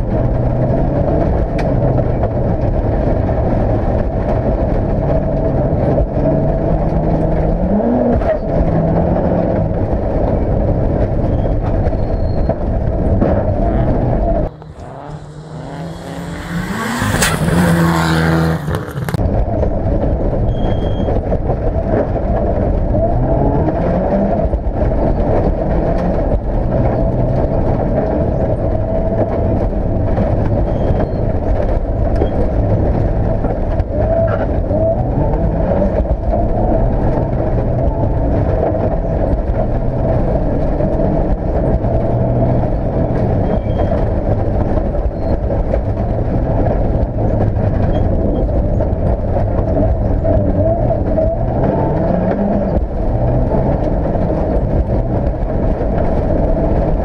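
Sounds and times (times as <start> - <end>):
rally car engine revving: 0.0 - 57.0.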